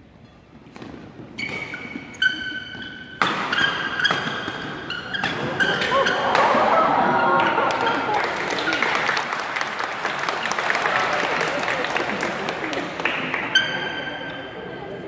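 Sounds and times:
shoes squeaking on court: 0.2 - 6.3, 13.3 - 14.7
racket hitting shuttlecock: 0.7 - 6.8
excited spectators' voices: 5.9 - 15.0.

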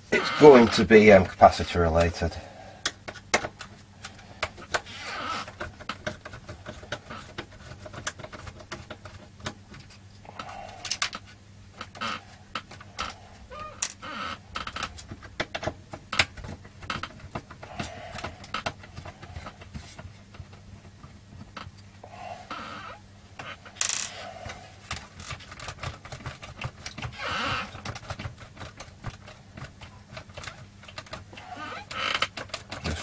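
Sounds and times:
low steady hum: 0.0 - 33.0
plastic and metal parts rattling: 2.9 - 10.0, 23.4 - 33.0.

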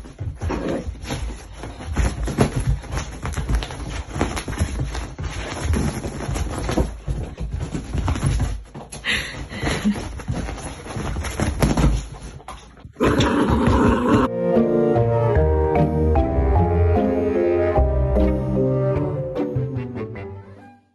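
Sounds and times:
soft thuds of paws on bed: 0.0 - 12.9
music: 14.3 - 20.9.

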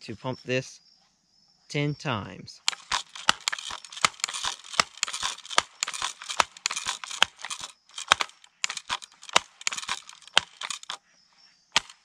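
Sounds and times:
air rifle pump lever clacking: 2.6 - 11.0, 11.8 - 12.0.

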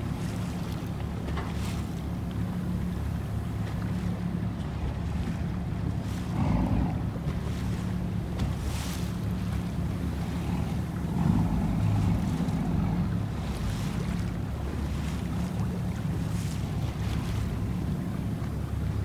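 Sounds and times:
boat engine droning: 0.0 - 19.0
water wash: 0.0 - 19.0.

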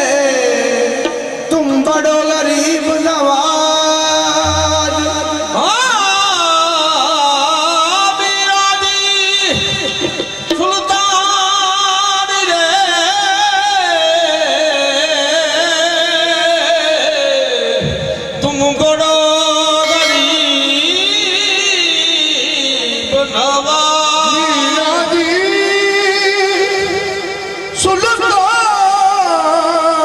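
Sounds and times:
harmonium melody: 19.8 - 21.6.

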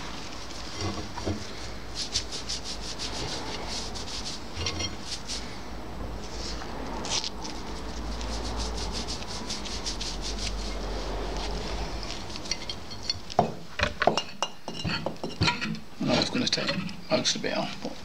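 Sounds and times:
gloved hand rubbing grease: 0.2 - 5.6, 6.2 - 12.5
metallic clinks and knocks: 12.4 - 15.8.

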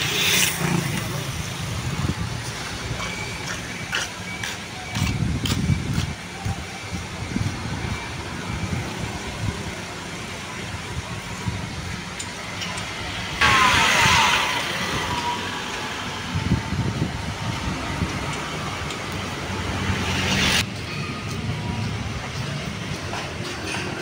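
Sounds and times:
loud hiss: 0.0 - 2.0
low rumble of road traffic: 0.0 - 24.0
wind: 0.0 - 24.0.

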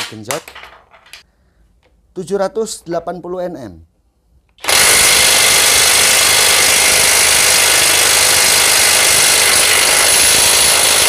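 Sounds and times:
impact wrench hammering: 4.6 - 11.0.

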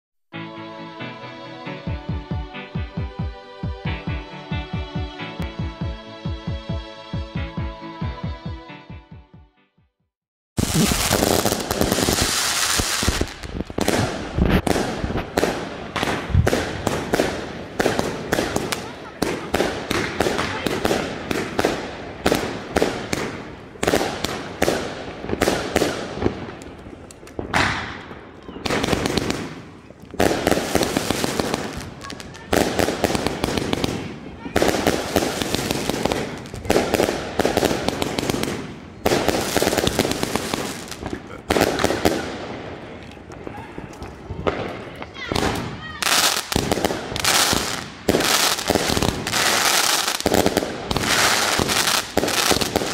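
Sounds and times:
firework bangs: 10.6 - 52.9
firework crackling: 10.6 - 52.9.

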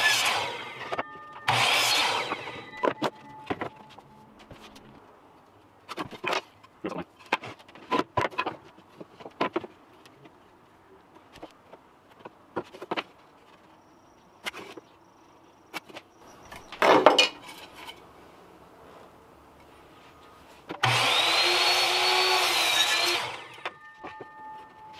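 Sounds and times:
wood pieces knocking and clattering: 2.7 - 4.7, 5.9 - 10.2, 15.7 - 18.0
wood scraping: 15.7 - 18.2.

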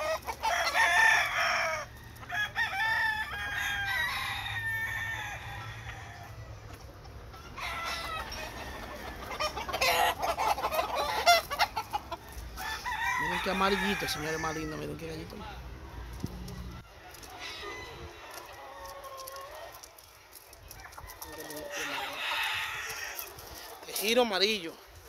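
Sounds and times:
roosters crowing: 0.0 - 24.7.

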